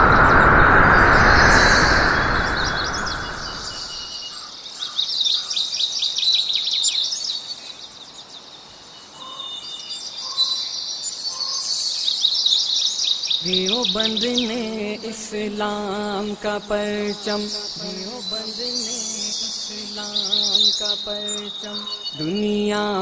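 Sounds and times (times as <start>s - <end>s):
rushing noise: 0.0s - 4.2s
birds chirping: 0.0s - 23.0s.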